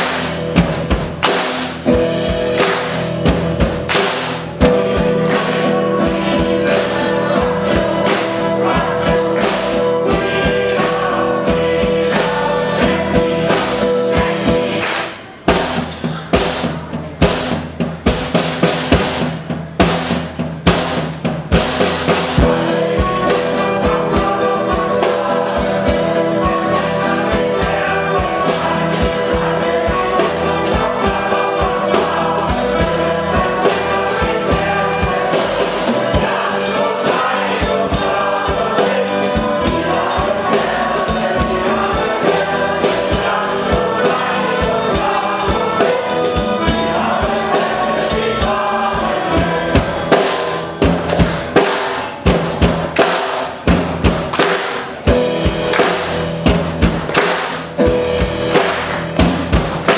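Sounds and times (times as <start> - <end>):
acoustic guitar: 0.0 - 17.2, 21.6 - 59.9
choir singing in chorus: 1.8 - 15.7, 22.1 - 52.4
people clapping in time: 3.8 - 4.4, 14.8 - 15.3, 55.7 - 56.0, 57.1 - 57.7
accordion: 22.4 - 50.7.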